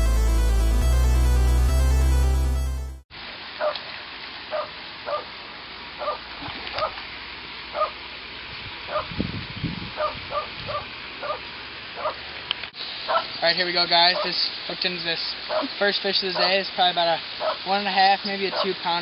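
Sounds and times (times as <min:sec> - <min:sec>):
dog yapping: 0:04.5 - 0:05.2, 0:06.0 - 0:06.2, 0:10.0 - 0:11.4, 0:12.0 - 0:12.2, 0:13.1 - 0:13.3, 0:15.5 - 0:15.7, 0:17.4 - 0:17.6.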